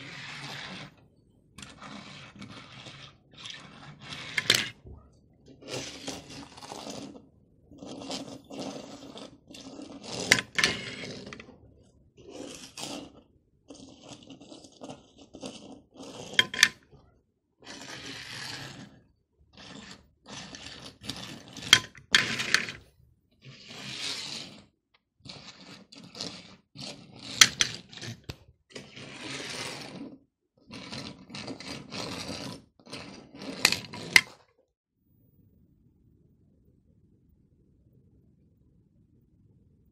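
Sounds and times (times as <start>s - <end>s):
toy cars rolling on table: 0.0s - 11.6s, 12.2s - 17.0s, 17.6s - 34.5s
metal toy cars clicking: 3.5s - 4.8s, 9.7s - 11.5s, 16.3s - 16.8s, 19.6s - 22.8s, 27.2s - 28.4s.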